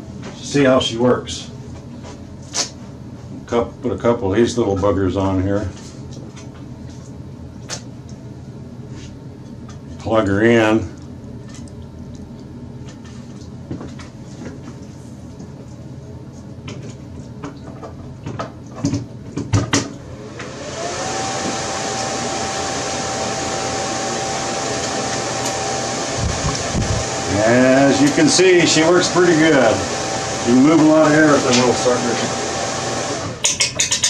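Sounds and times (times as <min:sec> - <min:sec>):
blower motor humming: 0:19.8 - 0:33.5.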